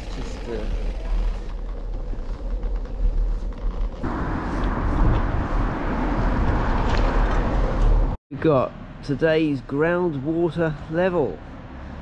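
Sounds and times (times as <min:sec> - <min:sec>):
wind rumbling on microphone: 0:00.0 - 0:08.2.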